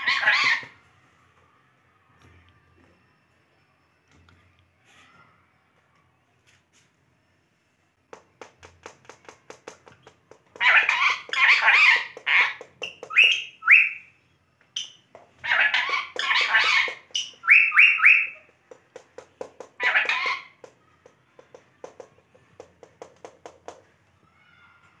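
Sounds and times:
parakeets squawking: 0.0 - 0.7, 10.6 - 14.0, 14.8 - 18.4, 19.8 - 20.6.

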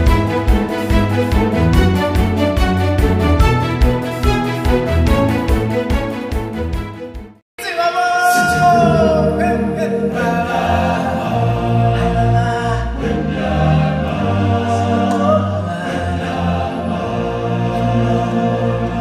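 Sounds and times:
deep bass line: 0.0 - 7.3
choir singing: 8.3 - 19.0.

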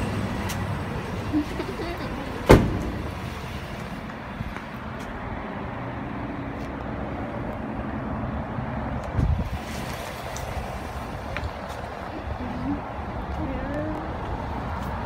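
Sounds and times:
sharp thump: 2.5 - 3.1.

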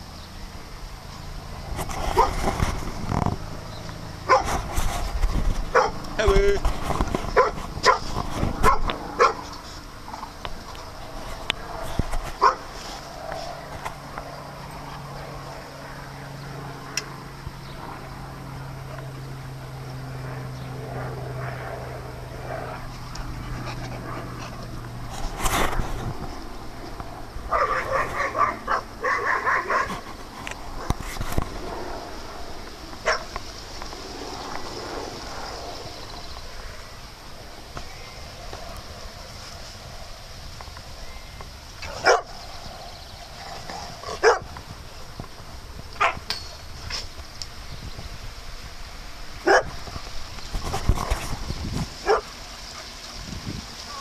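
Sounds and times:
dog barking: 4.3 - 4.5, 5.7 - 6.0, 7.4 - 8.0, 8.6 - 9.5, 12.4 - 12.6, 27.5 - 29.9, 42.0 - 42.3, 44.2 - 44.4, 49.4 - 49.7, 52.0 - 52.3.

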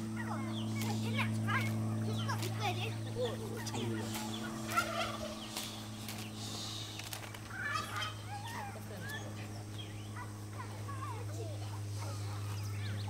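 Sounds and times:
poultry calling: 0.0 - 13.0
steady low hum: 0.0 - 13.0.

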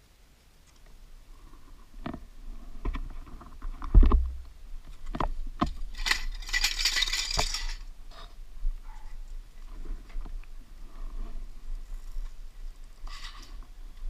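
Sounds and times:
rustling hiss: 0.0 - 14.0.

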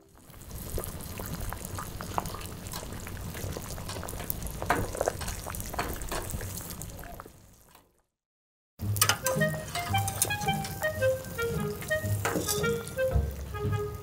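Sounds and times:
broth bubbling in a pot: 0.0 - 8.1.

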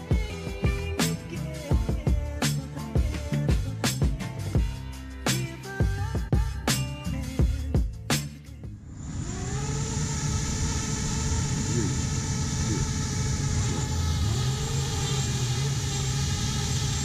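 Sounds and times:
motor throttle blips: 8.7 - 17.0
quadcopter motors whining: 8.8 - 17.0.

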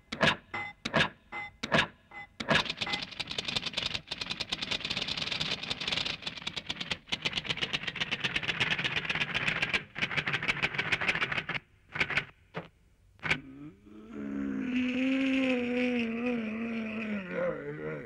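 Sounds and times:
rapid rattle of clicks: 2.5 - 12.4.

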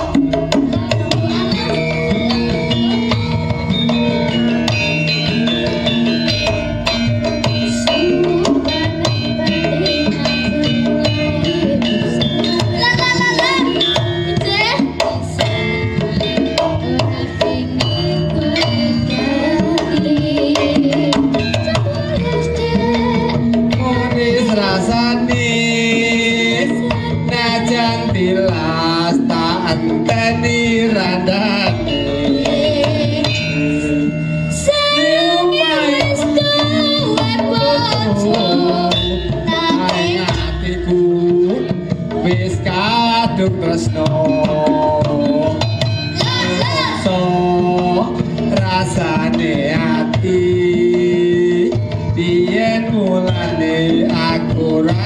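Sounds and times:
gamelan ensemble playing: 0.0 - 55.0
hand drum beating: 0.0 - 55.0
people singing a duet: 0.0 - 55.0.

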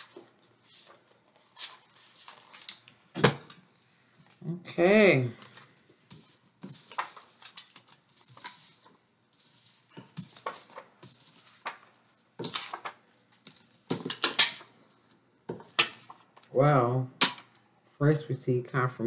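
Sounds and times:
cards shuffling: 0.0 - 14.8.

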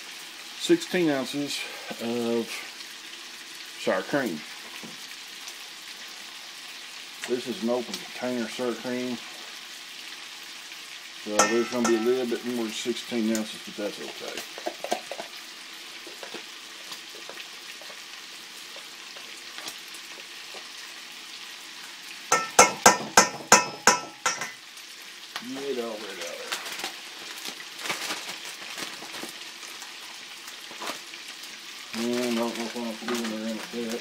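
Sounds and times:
bacon sizzling in a skillet: 0.0 - 34.0
metal spoon tapping metal bowl: 11.4 - 12.2, 22.3 - 24.6.

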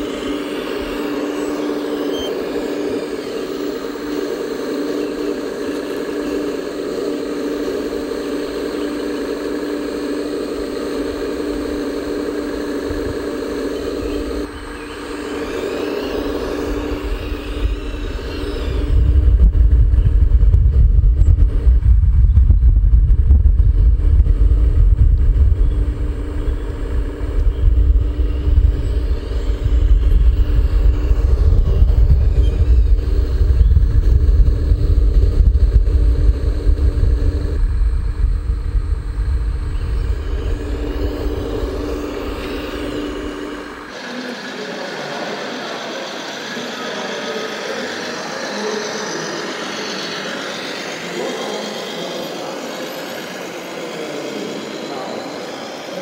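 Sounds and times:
model excavator hydraulic whine: 0.0 - 20.4, 23.9 - 56.0
uneven low rumble: 16.1 - 43.9.

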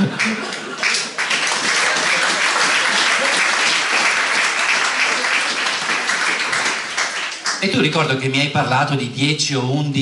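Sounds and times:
audience applause: 0.0 - 7.8.

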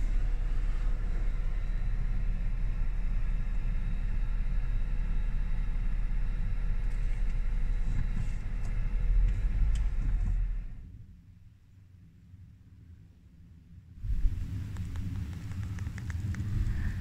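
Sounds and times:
vehicle engine and tyres rumbling: 0.0 - 12.9, 13.5 - 17.0.

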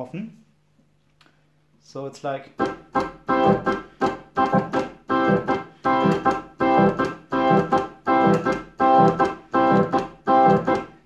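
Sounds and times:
electric organ choppy chords: 2.5 - 11.0.

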